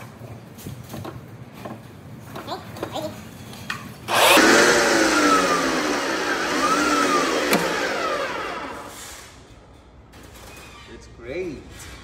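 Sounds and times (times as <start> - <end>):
machine motor whine: 4.1 - 9.3.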